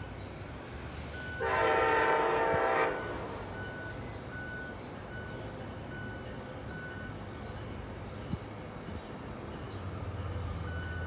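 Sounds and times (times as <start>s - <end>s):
train horn blast: 1.4s - 3.5s.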